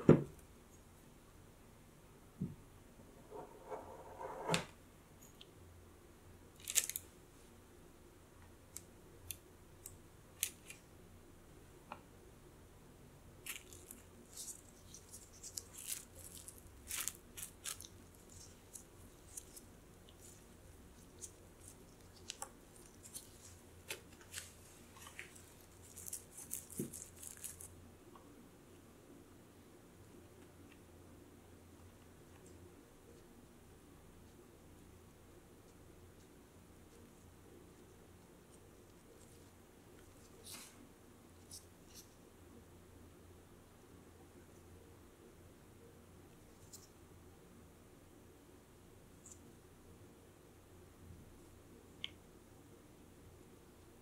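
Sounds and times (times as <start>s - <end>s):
plastic wrap crinkling: 6.6s - 7.1s, 13.4s - 27.7s.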